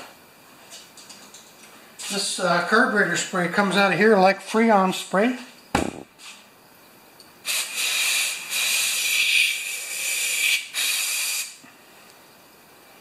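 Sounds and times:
aerosol spray hissing: 7.4s - 11.6s.

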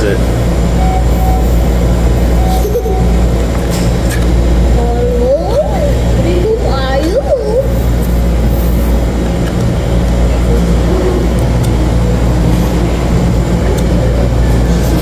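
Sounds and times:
low background rumble: 0.0s - 15.0s
faint short tones: 2.4s - 3.2s.

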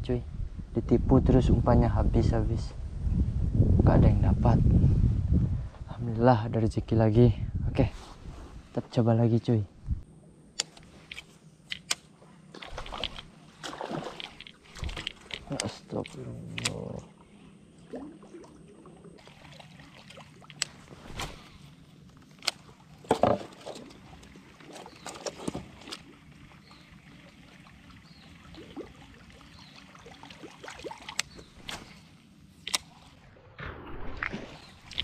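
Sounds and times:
water lapping around canoe: 12.3s - 16.2s, 17.2s - 33.4s.

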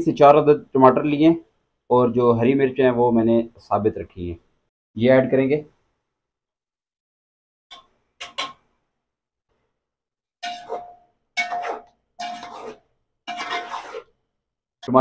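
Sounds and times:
spatula scraping metal pot: 10.4s - 14.2s.

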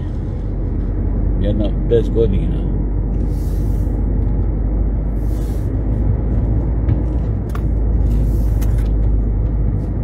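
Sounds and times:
car engine and road rumble: 0.0s - 10.0s
short hissing swells: 3.2s - 4.0s.

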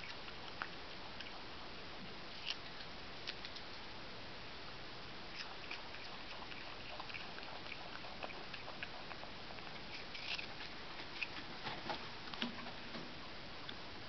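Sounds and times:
animal chewing with crunching clicks: 0.0s - 1.6s, 2.3s - 3.9s, 5.3s - 12.7s
background hiss: 0.0s - 14.0s.

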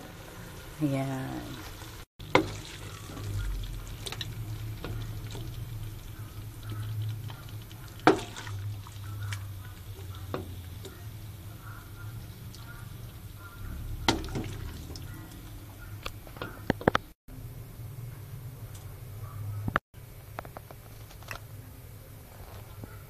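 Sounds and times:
spatula stirring food in a pan: 0.0s - 17.0s.

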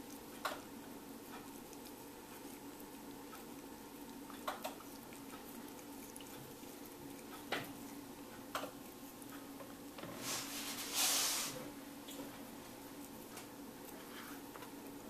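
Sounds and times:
cat tongue licking clicks: 0.0s - 9.4s
steady low hum: 0.0s - 15.0s.

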